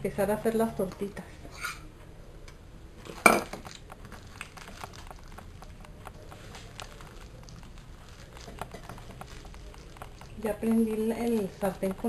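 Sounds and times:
hands mixing mashed food: 3.0s - 12.0s.

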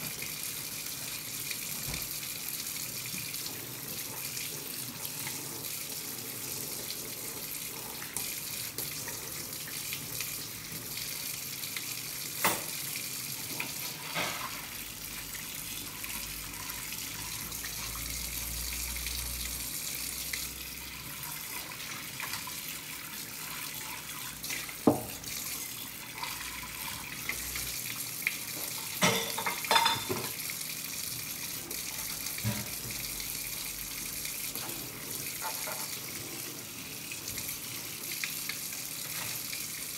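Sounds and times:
faucet running into sink: 0.0s - 39.9s
dishes clinking against sink: 28.8s - 30.4s, 32.4s - 33.0s.

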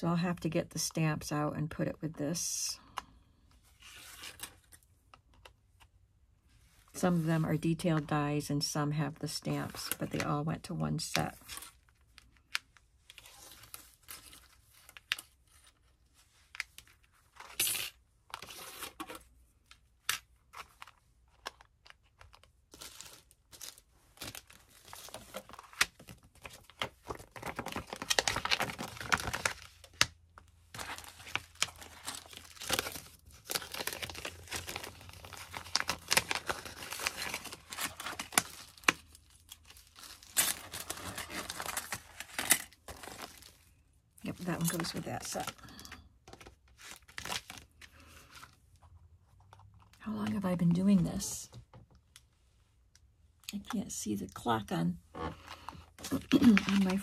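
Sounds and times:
paper rustling and crinkling: 11.4s - 50.0s, 55.2s - 57.0s.

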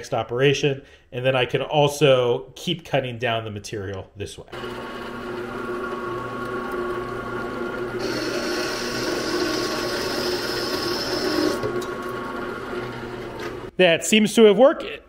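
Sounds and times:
machine hum: 4.5s - 13.7s
saw cutting steel bar: 8.0s - 11.6s.

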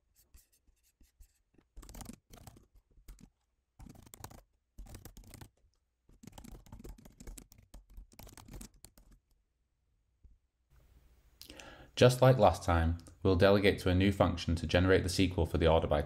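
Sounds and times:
faint keyboard typing: 0.4s - 9.4s.

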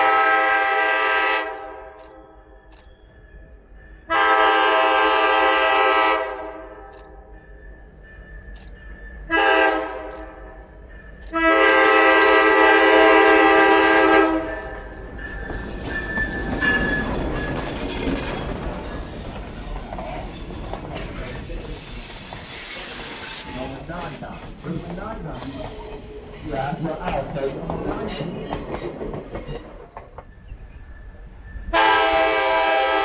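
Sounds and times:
locomotive horn blasts: 0.0s - 2.0s, 4.1s - 6.9s, 9.3s - 10.4s, 11.3s - 14.6s, 31.7s - 33.0s
train wheels on rails: 0.0s - 33.0s
locomotive engine rumbling: 2.8s - 33.0s.

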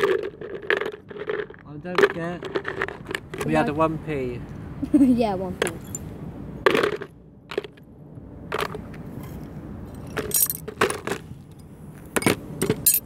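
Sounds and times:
metal objects clinking on concrete: 5.6s - 6.1s, 10.0s - 10.7s, 11.5s - 13.0s.

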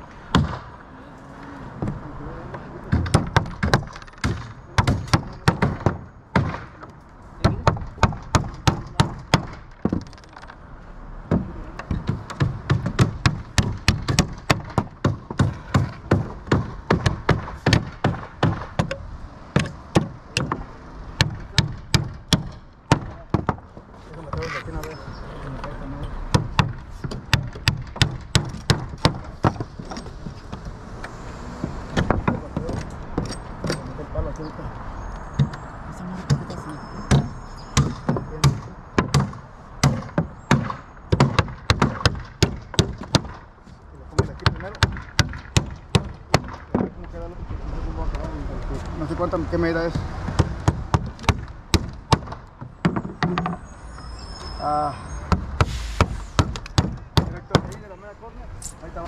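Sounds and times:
hammer nailing wood: 0.3s - 0.7s, 2.9s - 10.5s, 11.3s - 24.6s, 26.3s - 30.6s, 31.6s - 33.9s, 36.3s - 43.5s, 44.1s - 47.0s, 50.0s - 53.6s, 55.3s - 57.9s.

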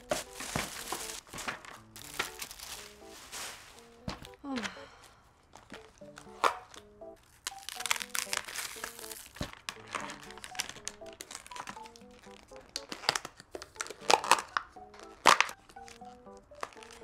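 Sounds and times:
plastic wrap crinkling: 0.0s - 4.6s, 5.5s - 17.0s
plastic lids snapping off: 12.7s - 15.6s.

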